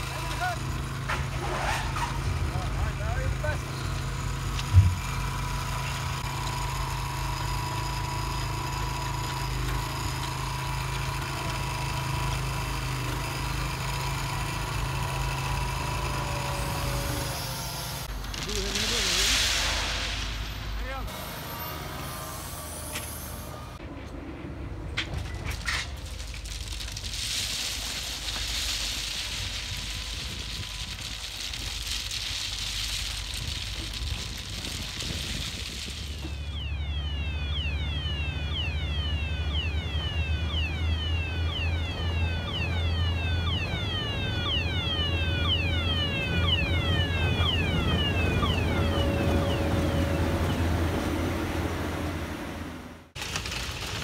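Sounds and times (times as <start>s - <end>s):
diesel engine droning: 0.0s - 54.0s
diesel machine hissing: 13.9s - 23.8s
electronic warning whistle: 36.2s - 50.8s.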